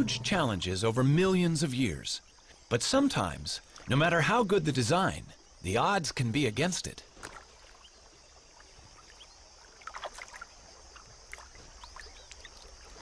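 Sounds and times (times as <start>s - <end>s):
water splashing and dripping: 6.5s - 13.0s.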